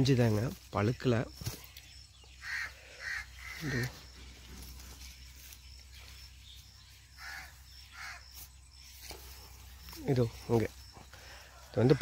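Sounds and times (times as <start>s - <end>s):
crow cawing: 2.4s - 4.0s, 7.2s - 8.3s.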